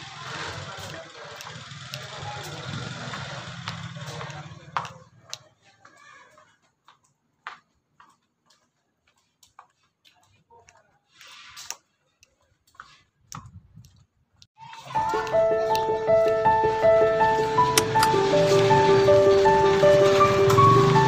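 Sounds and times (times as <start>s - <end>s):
background music with held notes: 14.8s - 21.0s.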